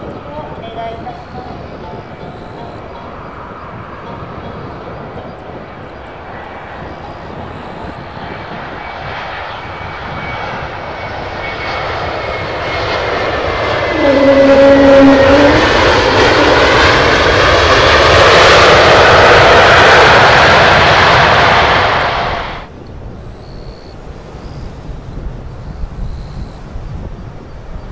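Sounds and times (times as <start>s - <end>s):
jet engines roaring on landing: 0.0s - 27.9s
two-note whine: 0.1s - 17.9s.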